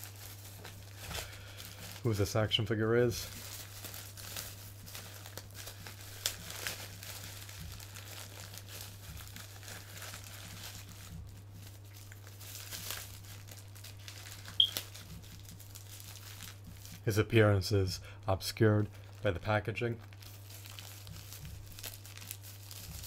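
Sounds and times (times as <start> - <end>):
plastic packaging crinkling: 0.0 - 23.0.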